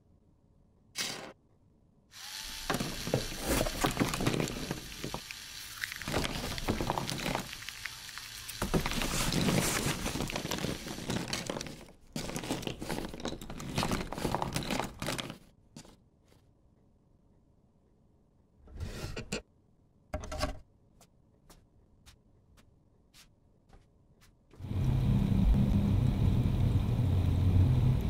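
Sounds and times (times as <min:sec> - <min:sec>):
crackling crumbling debris: 0:02.6 - 0:15.4.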